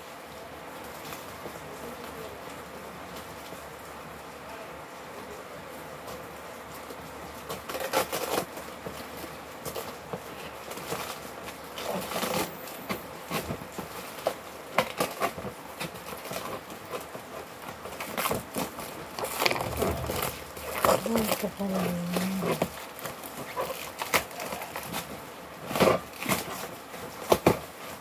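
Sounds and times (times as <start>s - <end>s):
plastic wrapping crinkling: 13.9s - 28.0s.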